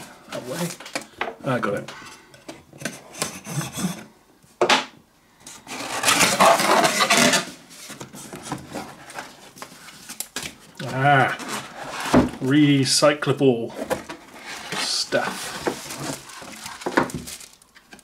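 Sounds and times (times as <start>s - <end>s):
cardboard rubbing and scraping: 5.6s - 9.5s, 10.9s - 12.3s, 14.3s - 17.3s
knife cutting cardboard box: 5.7s - 7.5s.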